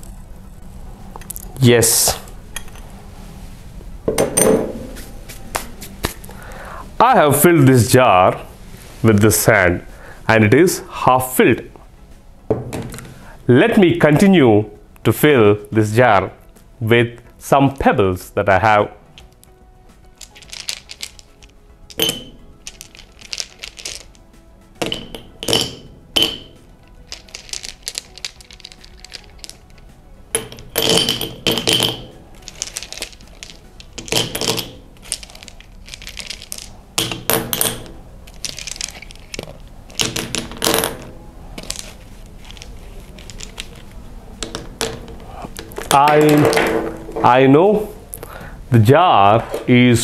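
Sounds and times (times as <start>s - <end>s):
pebbles clinking into glass jar: 20.2s - 24.2s, 24.8s - 29.8s, 30.4s - 42.6s.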